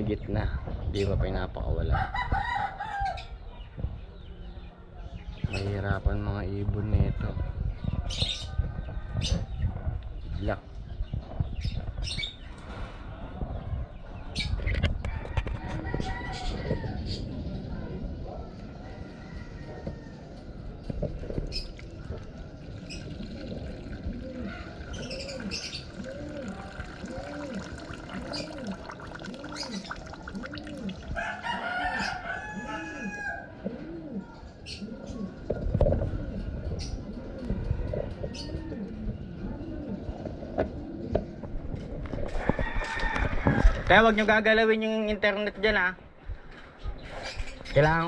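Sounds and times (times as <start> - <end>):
pigeons cooing: 15.6 - 43.7
liquid splashing into plastic: 21.4 - 31.2
bottle gurgling: 21.4 - 32.1.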